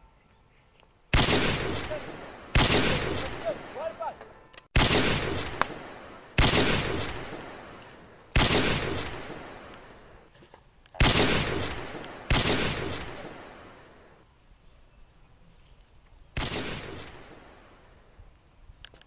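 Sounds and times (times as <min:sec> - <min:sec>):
gunfire volleys: 0:01.1 - 0:10.1, 0:11.0 - 0:14.1, 0:16.4 - 0:18.0.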